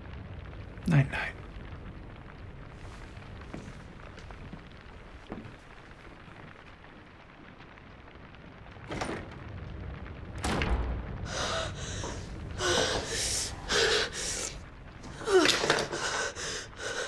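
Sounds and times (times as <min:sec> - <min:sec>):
deep rumble: 0:00.0 - 0:17.0
gasping wheezing breaths: 0:11.3 - 0:17.0.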